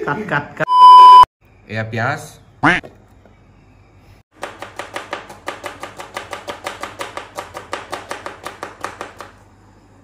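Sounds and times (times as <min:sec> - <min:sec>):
knife chopping on cutting board: 0:04.4 - 0:09.4.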